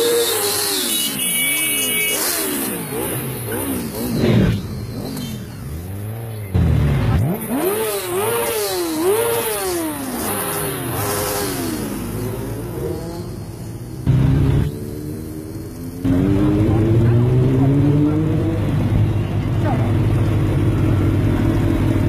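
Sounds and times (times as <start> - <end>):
motorcycles revving past: 2.1 - 18.9.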